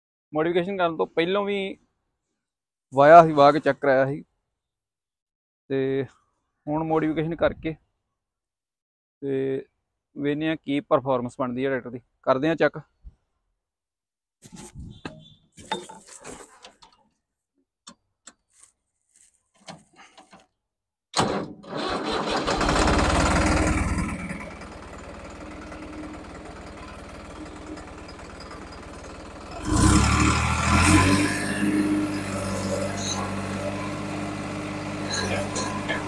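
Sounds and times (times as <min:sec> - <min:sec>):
tractor diesel engine: 0:21.2 - 0:36.0.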